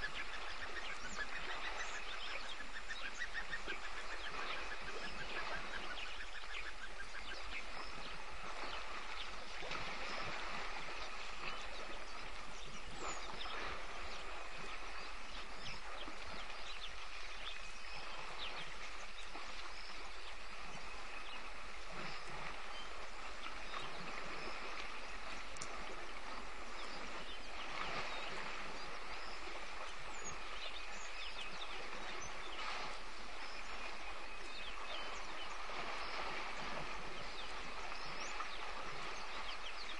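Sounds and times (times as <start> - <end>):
faint bird calls: 0.0 - 10.5
constant hiss: 0.0 - 39.9.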